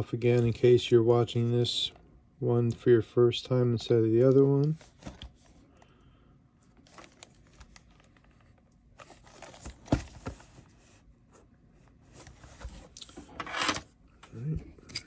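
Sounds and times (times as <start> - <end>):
shrink wrap crinkling: 6.7 - 9.9.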